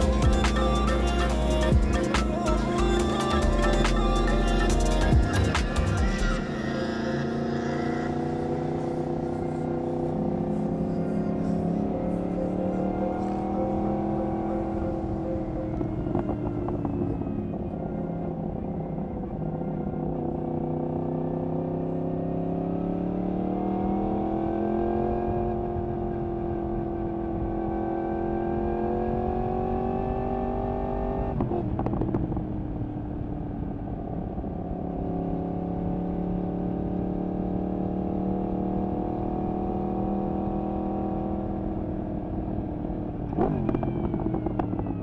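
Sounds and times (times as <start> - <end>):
motorcycle engine revving: 0.0 - 32.8, 34.9 - 45.0
exhaust crackle: 43.2 - 45.0.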